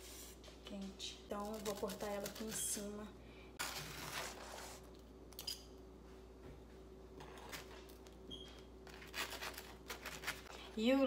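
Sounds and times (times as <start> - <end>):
knife crunching through pizza: 8.8 - 10.5.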